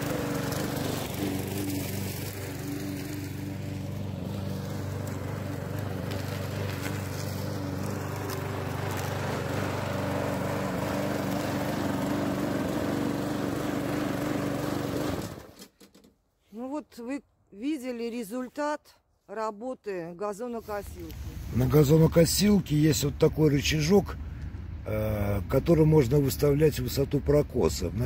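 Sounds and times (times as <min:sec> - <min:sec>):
lawn mower cutting grass: 0:00.0 - 0:16.1.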